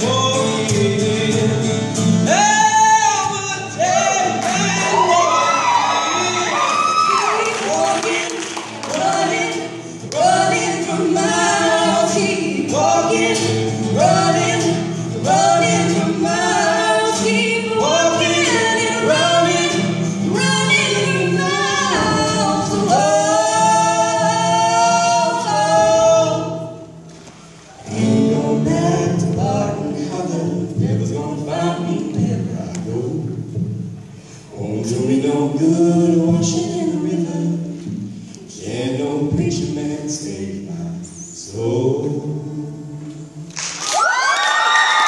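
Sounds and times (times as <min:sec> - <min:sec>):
strummed acoustic guitar: 0:00.0 - 0:05.0, 0:07.7 - 0:36.8
man and woman singing: 0:00.0 - 0:27.0, 0:27.7 - 0:45.0.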